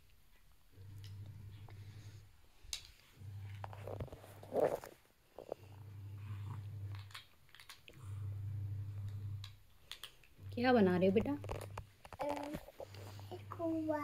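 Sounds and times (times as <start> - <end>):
low hum: 5.4 - 11.9
plastic toy blocks clicking: 6.9 - 7.9, 9.8 - 10.3.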